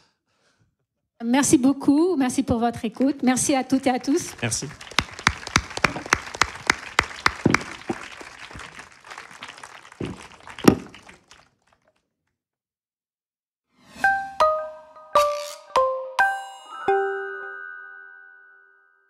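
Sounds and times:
audience applause: 0:03.0 - 0:11.7.

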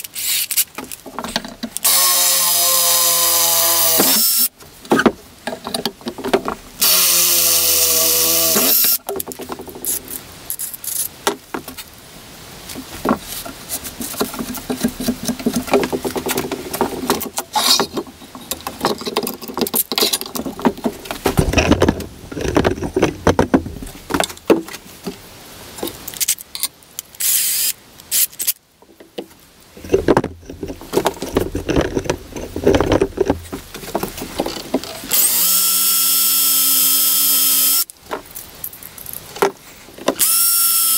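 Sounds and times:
power drill cutting steel: 0:01.8 - 0:04.5, 0:06.8 - 0:09.0, 0:35.1 - 0:37.9, 0:40.2 - 0:40.9
metal clanks and rattles: 0:13.9 - 0:24.7, 0:28.9 - 0:35.1.

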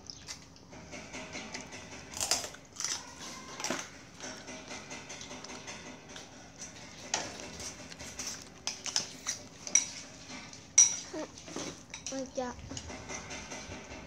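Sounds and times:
cutlery clinking on dishes: 0:00.9 - 0:12.2.

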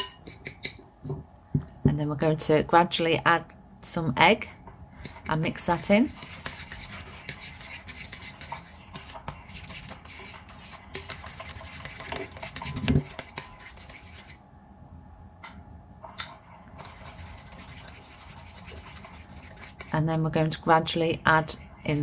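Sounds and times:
spoon scraping ceramic bowl: 0:06.1 - 0:14.3.

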